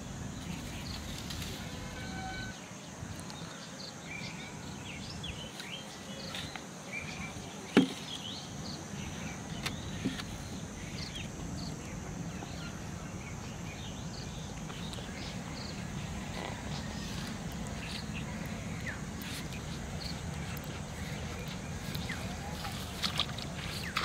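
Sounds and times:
small birds chirping: 0.0 - 24.0
steady background hum: 0.0 - 24.0.

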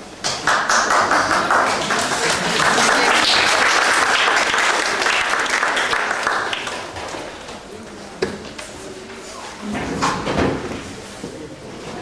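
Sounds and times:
audience applauding: 0.3 - 7.2.

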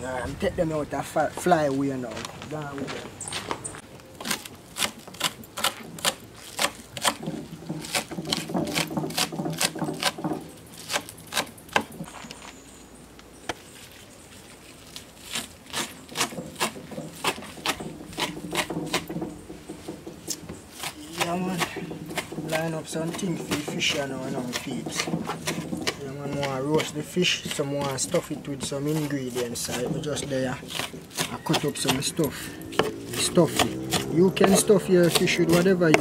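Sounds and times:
knife chopping on wooden board: 4.2 - 12.1, 15.3 - 36.0.

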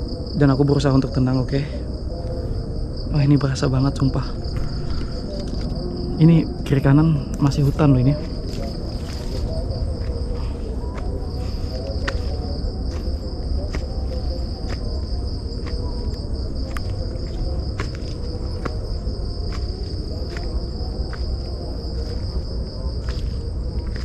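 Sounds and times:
insects trilling: 0.0 - 24.0
footsteps on leafy dirt path: 4.4 - 5.8, 7.4 - 24.0.

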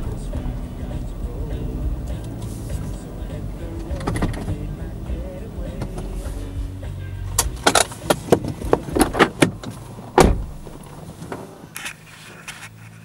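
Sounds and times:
engine low hum: 0.0 - 13.0
handling clicks and rattles in car: 2.0 - 6.2, 7.2 - 13.0
heavy thump: 7.4 - 11.1.

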